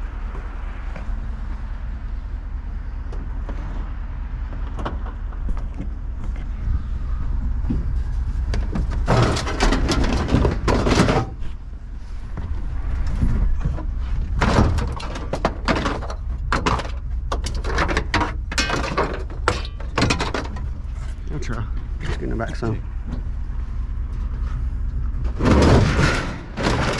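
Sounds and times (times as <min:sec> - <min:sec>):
low steady rumble: 0:00.0 - 0:26.9
scrap metal clattering and scraping: 0:07.7 - 0:22.2, 0:24.0 - 0:26.9.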